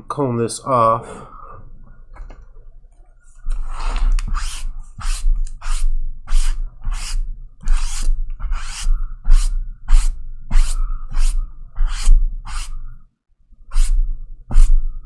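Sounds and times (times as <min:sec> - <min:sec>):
tool scraping cardboard box: 0:03.8 - 0:12.7.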